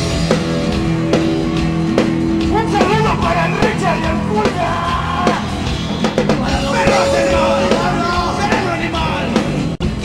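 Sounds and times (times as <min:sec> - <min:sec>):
drums: 0:00.0 - 0:10.0
hard rock band playing: 0:00.0 - 0:10.0
person yelling vocals: 0:02.6 - 0:05.5.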